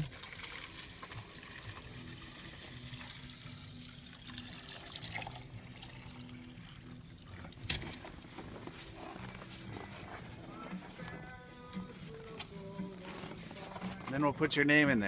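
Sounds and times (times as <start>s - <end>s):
water pouring into carton: 0.0s - 8.2s.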